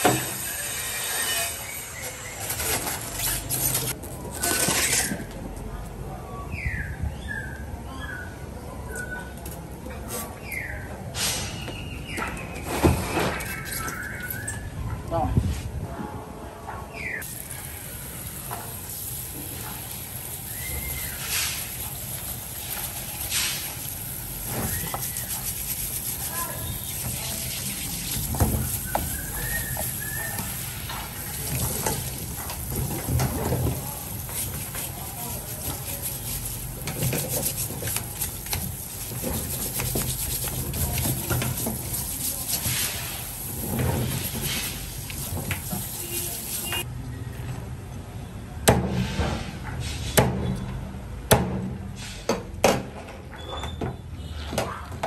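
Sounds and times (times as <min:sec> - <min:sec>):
water running from sink spray: 0:17.2 - 0:46.8
hands scrubbing crab shell: 0:19.6 - 0:46.8.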